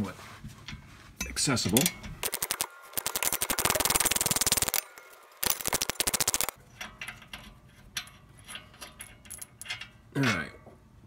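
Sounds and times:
ratchet wrench clicking: 2.2 - 4.8, 5.4 - 6.6.

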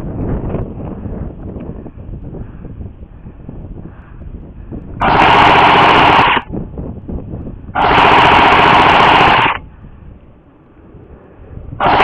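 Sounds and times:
airsoft gun full-auto firing: 5.0 - 6.5, 7.8 - 9.6.

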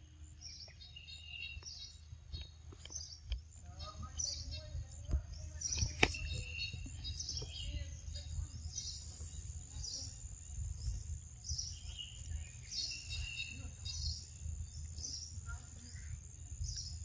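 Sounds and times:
birds chirping: 0.0 - 17.0
high insect drone: 3.8 - 17.0
sharp clicks: 5.7 - 6.4.

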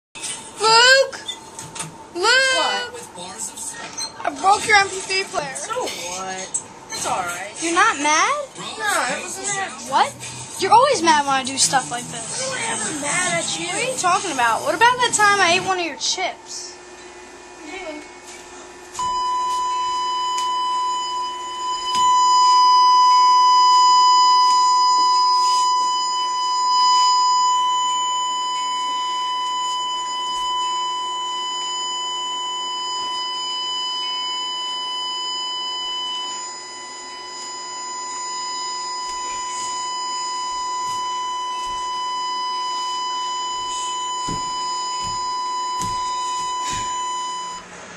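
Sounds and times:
censor bleep tone: 19.0 - 47.7.

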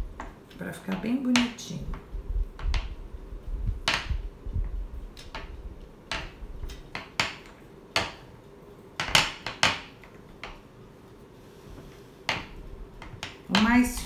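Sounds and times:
hand tools tapping on board: 6.1 - 8.2.

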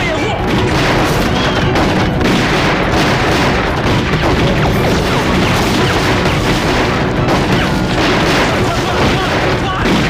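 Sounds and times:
explosion booms: 0.4 - 10.0
gunfire: 0.4 - 10.0.

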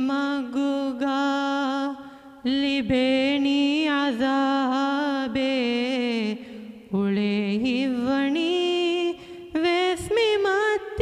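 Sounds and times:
boy singing unaccompanied: 7.0 - 11.0.

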